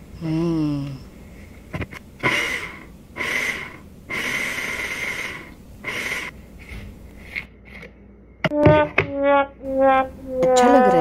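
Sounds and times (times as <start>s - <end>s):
blender pulsing: 2.2s - 6.3s.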